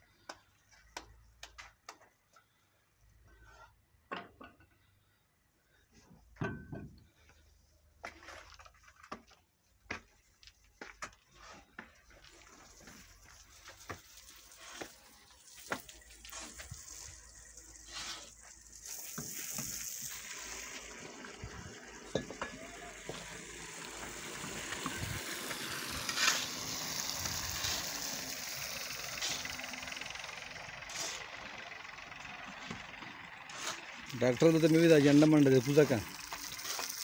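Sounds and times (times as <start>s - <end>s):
knocks and scrapes of bricks: 9.1s - 15.1s
hose water hissing on concrete: 10.1s - 31.7s, 33.5s - 37.0s.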